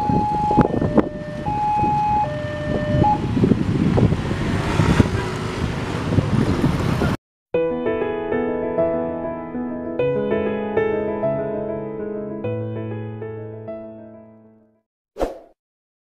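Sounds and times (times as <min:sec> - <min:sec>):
motorcycle engines: 0:01.1 - 0:07.2
music: 0:07.6 - 0:14.8.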